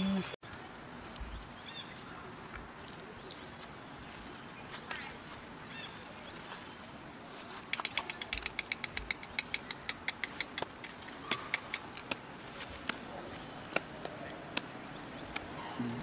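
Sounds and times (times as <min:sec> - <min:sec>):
animal chirping: 0:07.6 - 0:12.1.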